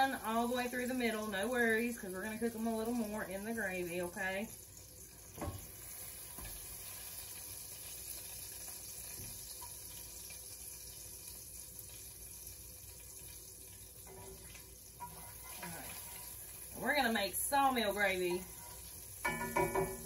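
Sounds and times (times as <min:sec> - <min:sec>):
grease sizzling in a skillet: 0:00.0 - 0:20.0
utensil knocking against pan: 0:19.2 - 0:20.0.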